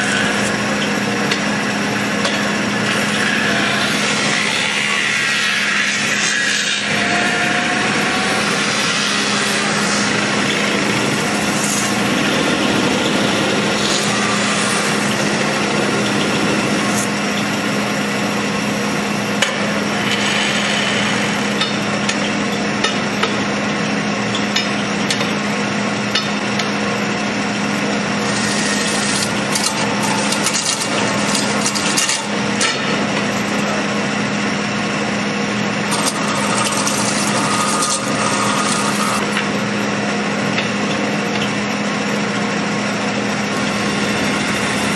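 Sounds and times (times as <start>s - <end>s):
lathe humming: 0.0s - 23.7s, 25.6s - 44.9s
bar scraping spinning sheet metal: 2.2s - 17.4s, 28.2s - 33.6s, 35.8s - 39.5s.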